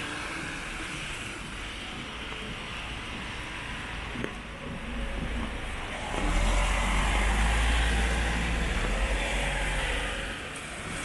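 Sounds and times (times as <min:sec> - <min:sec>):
rain and wet road hiss: 0:00.0 - 0:04.2, 0:05.8 - 0:11.0
vehicle low rumble: 0:00.3 - 0:11.0.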